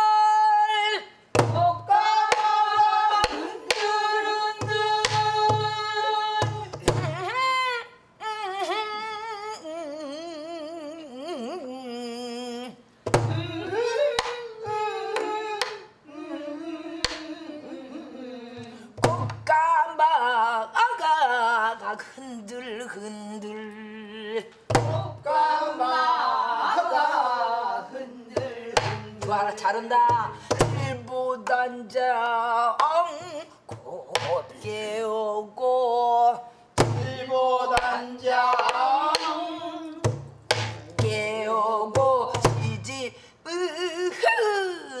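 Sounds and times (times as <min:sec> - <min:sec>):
woman singing folk song: 0:00.0 - 0:25.3, 0:28.0 - 0:45.0
barrel drum thumps: 0:01.3 - 0:01.7, 0:04.6 - 0:07.2, 0:24.7 - 0:25.1, 0:36.8 - 0:37.1, 0:40.0 - 0:41.2.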